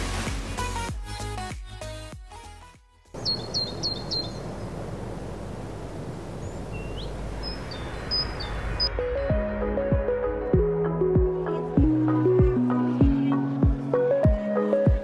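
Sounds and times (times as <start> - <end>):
music: 0.0 - 3.2, 8.8 - 15.0
background hiss: 3.2 - 8.8
small birds chirping: 3.2 - 9.0.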